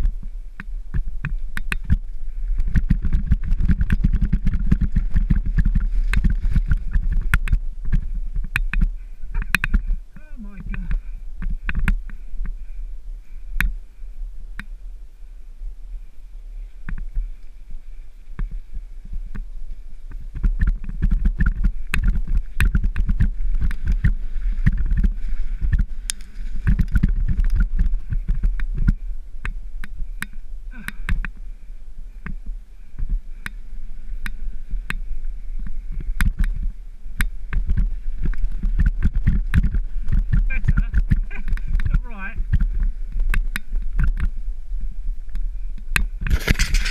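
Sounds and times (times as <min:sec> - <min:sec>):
tyres on dirt: 0:00.0 - 0:46.9
wind buffeting microphone: 0:00.0 - 0:46.9.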